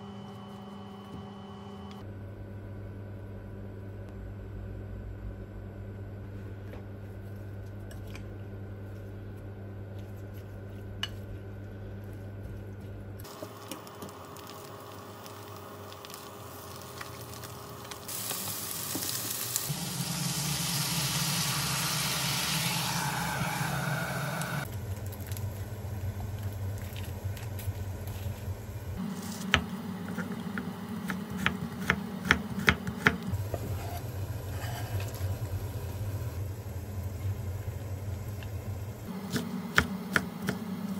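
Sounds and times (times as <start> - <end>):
quiet kitchen sounds: 0.0 - 40.9
water sizzling in hot pan: 13.3 - 25.5.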